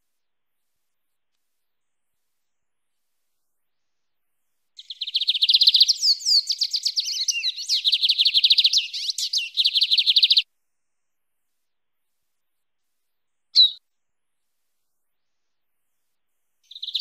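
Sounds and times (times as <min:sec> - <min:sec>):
bird singing fast high notes: 0:13.6 - 0:13.8.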